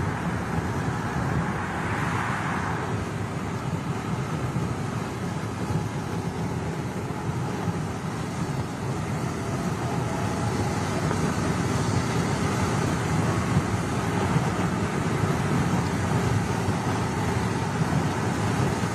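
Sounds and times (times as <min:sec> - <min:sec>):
car driving on paved road: 0:00.0 - 0:18.9.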